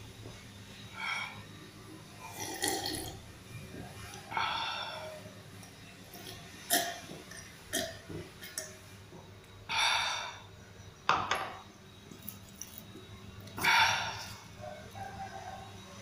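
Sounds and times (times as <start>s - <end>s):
breathy exhale: 13.6s - 14.4s.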